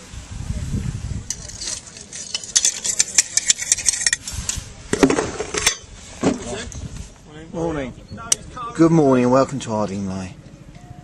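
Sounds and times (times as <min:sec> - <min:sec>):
metal rod scraping and clinking: 0:01.3 - 0:04.6, 0:05.4 - 0:06.8.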